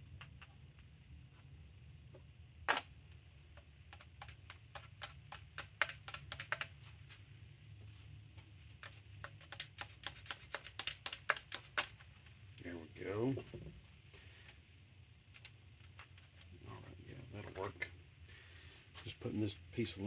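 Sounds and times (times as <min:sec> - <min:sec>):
low steady hum: 0:00.0 - 0:20.0
small metal parts clicking: 0:08.8 - 0:12.0.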